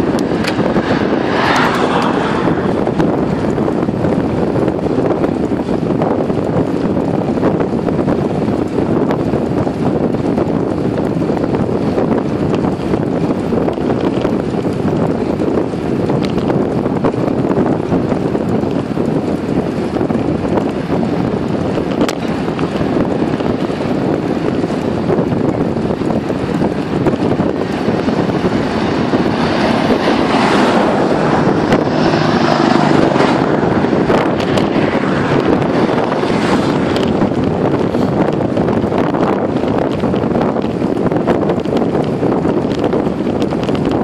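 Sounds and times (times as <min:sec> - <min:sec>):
wind buffeting microphone: 0:00.0 - 0:44.0
heavy truck driving past: 0:27.6 - 0:36.2.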